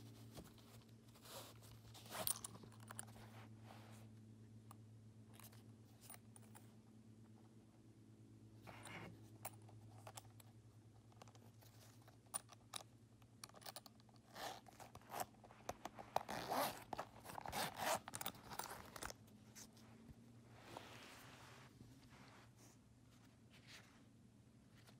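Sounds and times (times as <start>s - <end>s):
wallet handling clicks and rustles: 0.0s - 3.7s, 8.6s - 20.2s
wallet zipper being pulled open: 1.2s - 3.2s, 13.5s - 19.2s.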